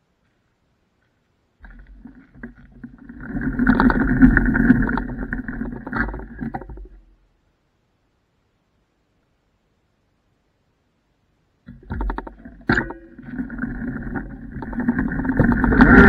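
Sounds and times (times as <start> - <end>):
scooter rumbling over gravel: 1.6 - 6.8, 13.2 - 16.0.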